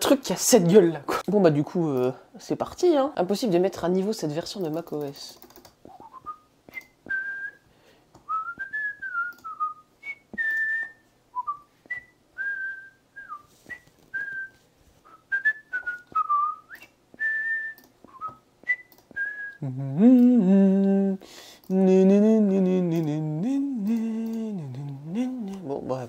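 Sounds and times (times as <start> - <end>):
sharp clicks: 4.6 - 5.9, 9.2 - 9.6, 17.7 - 18.2, 18.8 - 19.2, 23.8 - 25.6
person whistling a tune: 6.0 - 7.6, 8.3 - 20.6.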